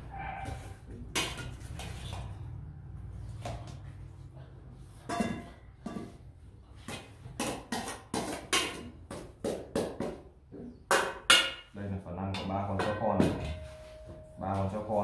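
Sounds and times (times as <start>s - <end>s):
metal spoon scraping steel bowls: 0.0s - 2.6s.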